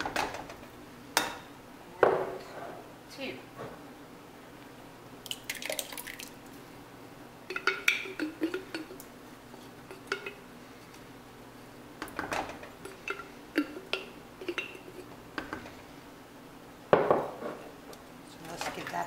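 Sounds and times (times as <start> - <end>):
spoon knocking metal pot: 7.5 - 9.0.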